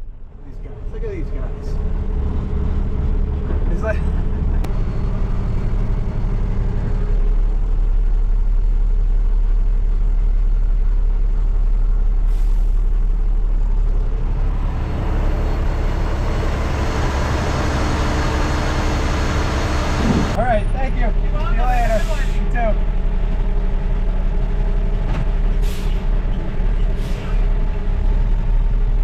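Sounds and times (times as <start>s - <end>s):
diesel truck engine running: 0.0s - 29.0s
hiss: 25.6s - 26.1s.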